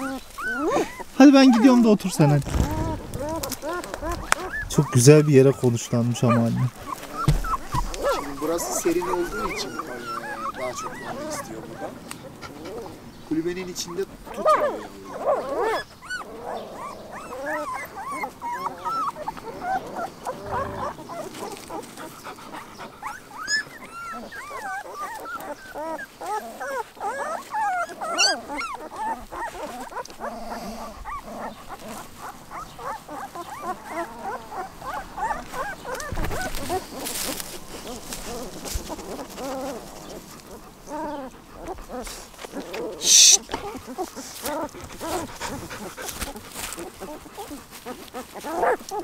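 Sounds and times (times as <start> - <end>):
puppies whimpering and squeaking: 0.0 - 49.0
dull thump: 2.4 - 4.8, 7.2 - 8.2, 36.1 - 36.6.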